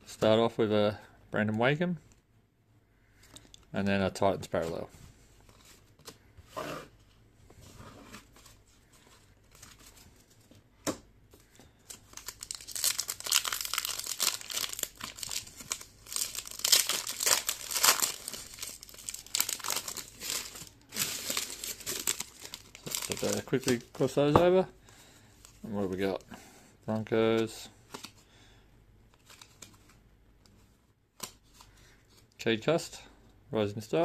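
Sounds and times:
foil card packet crinkling and tearing: 0:11.8 - 0:24.2.

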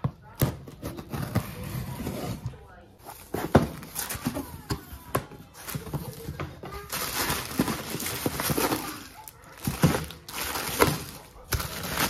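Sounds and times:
plastic bags crinkling: 0:03.1 - 0:12.0
packages knocking against carton: 0:03.3 - 0:12.0.

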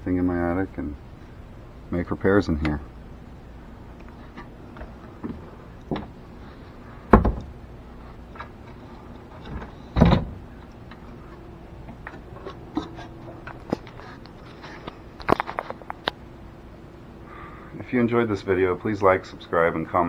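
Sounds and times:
heavy thumps on wooden ladder: 0:07.1 - 0:07.6, 0:09.4 - 0:10.4.

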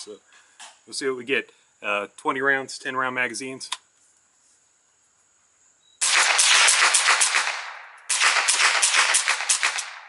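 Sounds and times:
suppressed rifle shots: 0:06.0 - 0:10.0.

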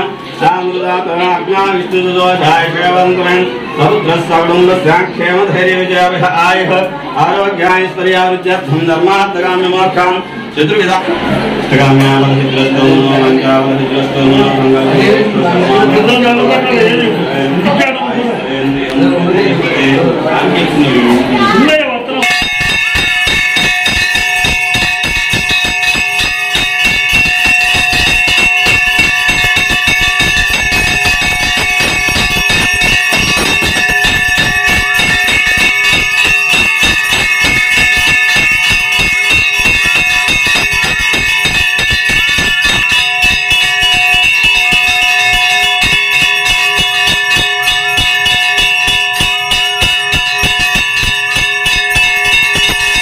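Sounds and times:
bell ringing rapidly: 0:22.2 - 0:53.0.

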